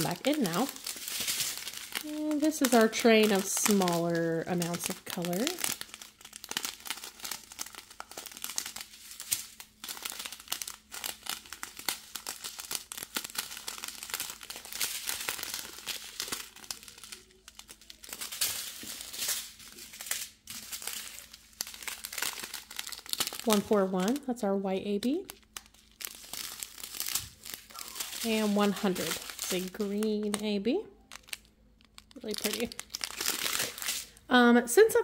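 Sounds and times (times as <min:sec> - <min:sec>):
plastic bags crinkling and rustling: 0:00.0 - 0:24.3, 0:25.0 - 0:34.2.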